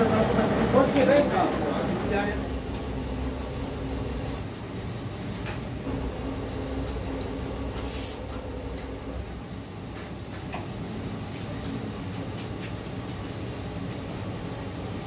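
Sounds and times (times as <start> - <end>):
low machine hum: 1.9 - 12.4
spray bottle hiss: 7.8 - 8.3.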